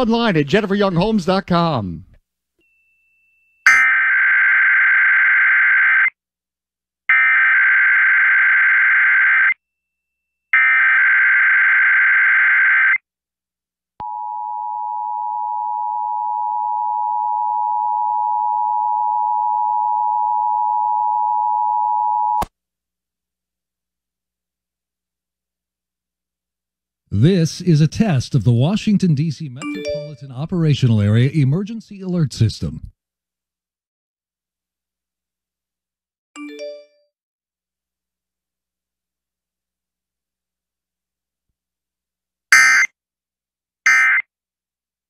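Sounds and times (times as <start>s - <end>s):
two-tone alert signal: 3.7s - 3.9s, 29.5s - 30.4s, 42.5s - 42.9s, 43.9s - 44.2s
digital data screech: 42.6s - 42.9s, 43.9s - 44.2s.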